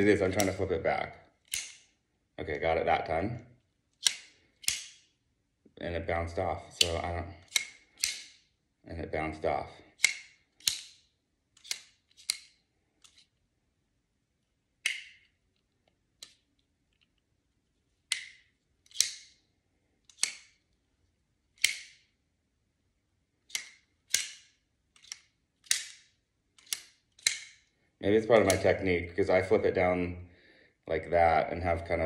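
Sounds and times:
utility knife snapping open and shut: 0:01.4 - 0:01.8, 0:04.0 - 0:05.0, 0:06.8 - 0:08.4, 0:10.0 - 0:11.0, 0:11.6 - 0:13.2, 0:18.1 - 0:19.3, 0:20.1 - 0:20.6, 0:21.6 - 0:22.0, 0:23.5 - 0:27.6.

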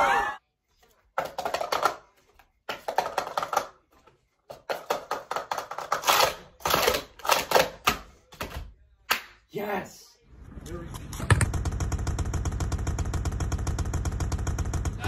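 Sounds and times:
plastic cups clattering: 0:01.1 - 0:08.7.

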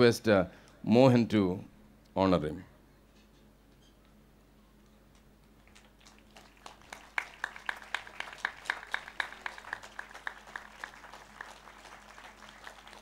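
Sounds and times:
congregation clapping rhythmically: 0:05.6 - 0:13.0.

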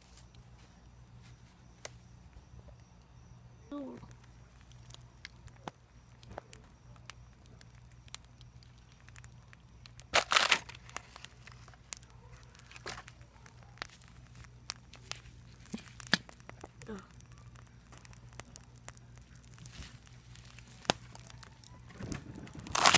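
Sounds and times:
embers crackling and popping: 0:00.0 - 0:22.9.

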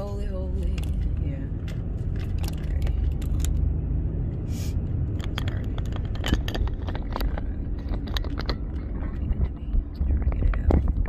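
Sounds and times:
car road noise rumble: 0:00.0 - 0:11.0
phone handling clicks and scrapes: 0:05.1 - 0:09.5.

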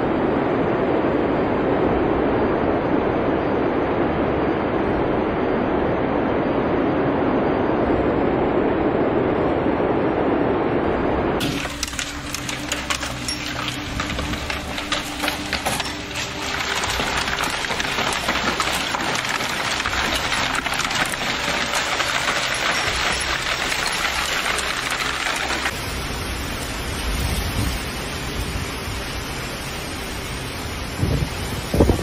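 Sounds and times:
wind-driven rain: 0:00.0 - 0:32.0
hail and rain falling: 0:11.4 - 0:32.0
wind buffeting microphone: 0:30.8 - 0:32.0.

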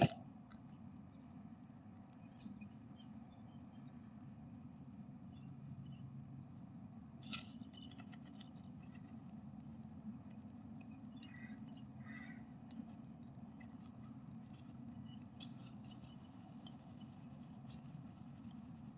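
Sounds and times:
steady low hum: 0:00.0 - 0:18.9
bird peeping: 0:10.5 - 0:12.9.

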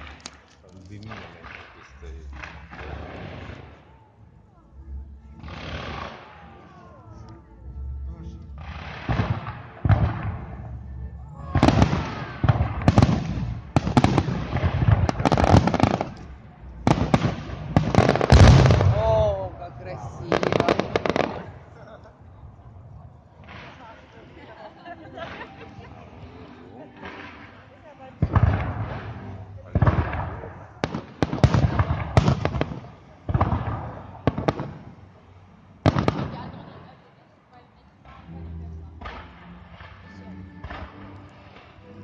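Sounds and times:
fireworks crackling: 0:00.0 - 0:04.0, 0:08.5 - 0:22.1, 0:23.3 - 0:37.2.

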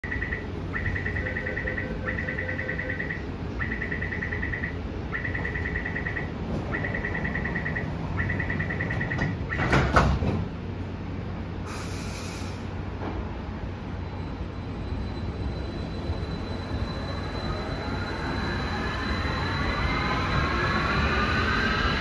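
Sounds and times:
high-pitched warning beeps: 0:00.0 - 0:09.7.

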